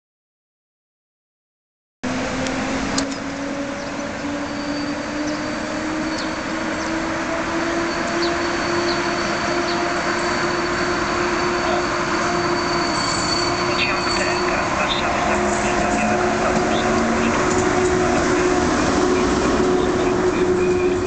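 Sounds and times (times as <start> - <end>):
electric train running: 2.1 - 21.0.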